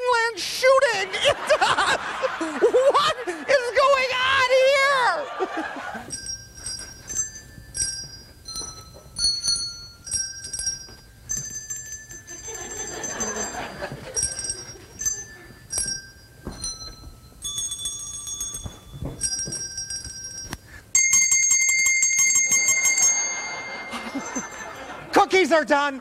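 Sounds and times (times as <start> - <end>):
handbells ringing a slow tune: 5.8 - 25.1.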